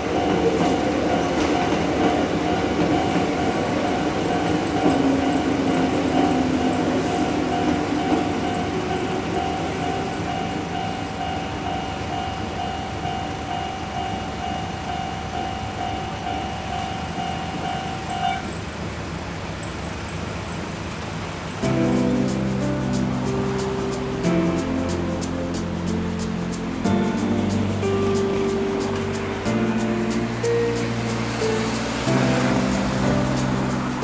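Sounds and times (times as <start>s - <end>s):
level-crossing warning bell: 0.0s - 18.8s
electric train rumbling: 0.0s - 34.0s.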